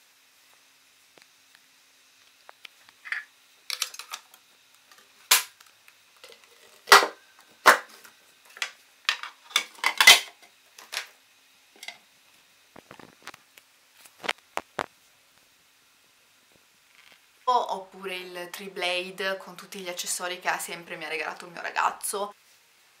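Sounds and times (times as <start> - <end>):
plastic parts clacking together: 3.1 - 4.4, 8.5 - 11.1.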